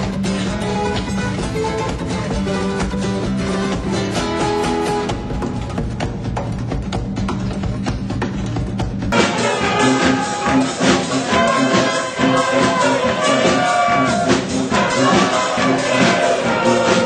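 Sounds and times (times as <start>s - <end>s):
bass-heavy sound: 0.0s - 17.0s
brass band playing: 9.1s - 17.0s.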